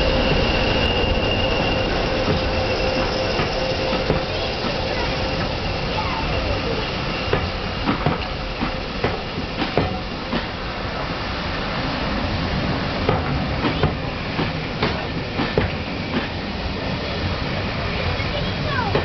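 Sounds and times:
train coaches rumbling past: 0:00.0 - 0:19.0
wheels clicking over rail joints: 0:18.4 - 0:19.0.

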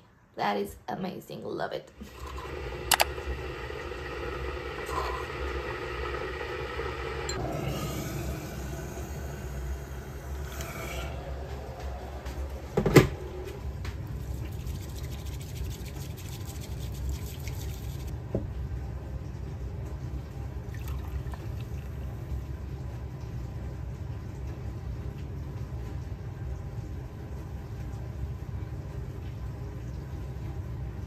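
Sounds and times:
low rumble: 0:02.5 - 0:14.6.

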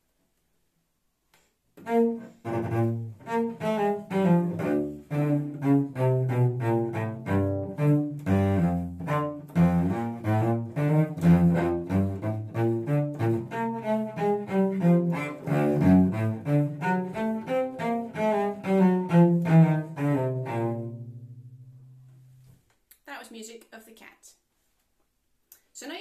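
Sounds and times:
bowed cello playing: 0:01.8 - 0:22.3.

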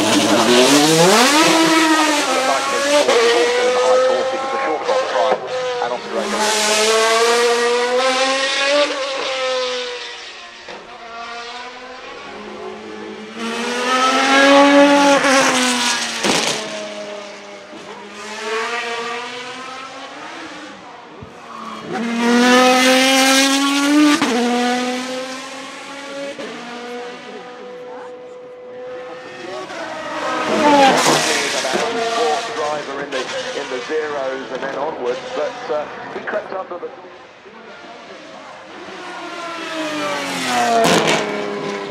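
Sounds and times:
race car engine accelerating: 0:00.0 - 0:41.9.

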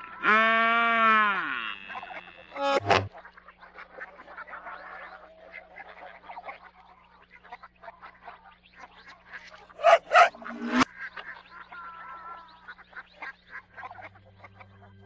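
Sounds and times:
loud calls: 0:09.8 - 0:10.8
reversed animal-like calls: 0:09.8 - 0:10.8.

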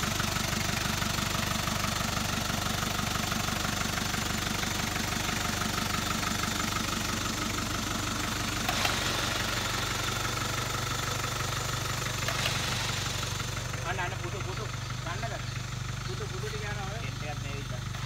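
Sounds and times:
jeep engine idling: 0:00.0 - 0:18.0.

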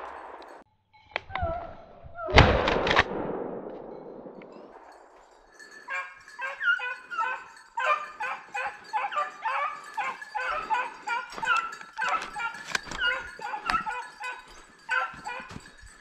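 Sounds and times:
shotgun shot echo: 0:02.4 - 0:05.1
hounds baying: 0:04.7 - 0:16.0.

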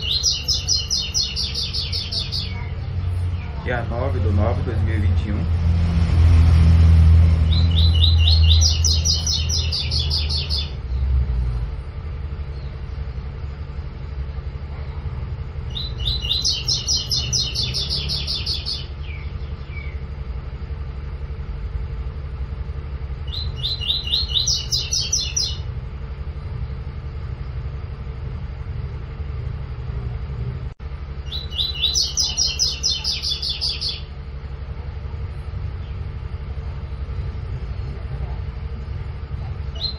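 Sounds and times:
bird singing rapid high notes: 0:00.0 - 0:04.6, 0:07.2 - 0:11.0, 0:15.7 - 0:20.1, 0:23.2 - 0:25.7, 0:31.2 - 0:34.2
steady low rumble: 0:00.0 - 0:39.9.

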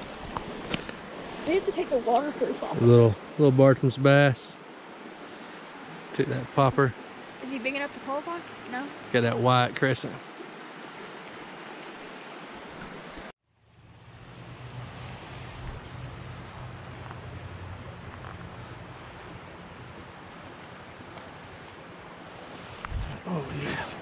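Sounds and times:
even hiss: 0:00.0 - 0:24.0
high-pitched insect buzz: 0:04.6 - 0:13.3, 0:13.9 - 0:23.2.

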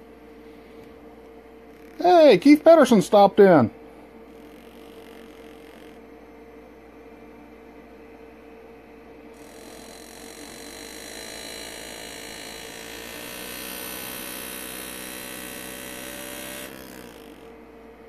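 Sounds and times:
electrical hum: 0:00.0 - 0:18.0
pneumatic engraver buzzing: 0:04.3 - 0:06.1, 0:09.3 - 0:17.6.

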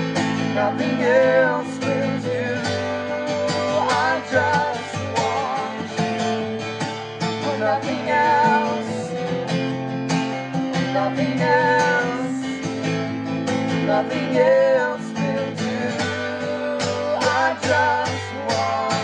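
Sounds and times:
acoustic guitar strumming: 0:00.0 - 0:19.0
woman singing: 0:00.4 - 0:06.4, 0:07.4 - 0:09.2, 0:10.8 - 0:12.6, 0:13.7 - 0:19.0.

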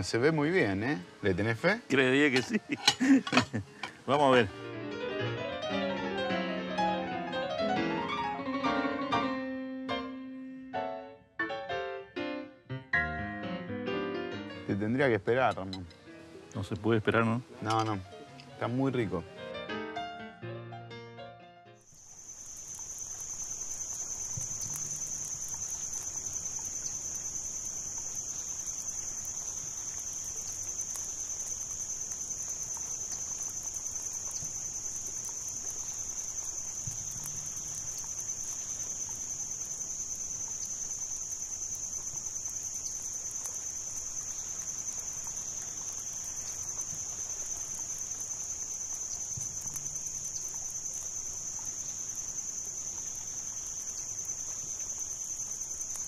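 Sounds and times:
crickets chirping: 0:00.0 - 0:09.2, 0:21.8 - 0:56.0.

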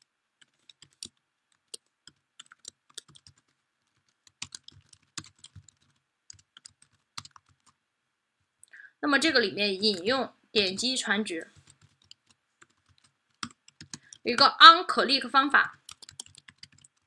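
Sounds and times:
computer keyboard keystrokes: 0:00.4 - 0:07.8, 0:11.6 - 0:14.2, 0:15.7 - 0:17.0.

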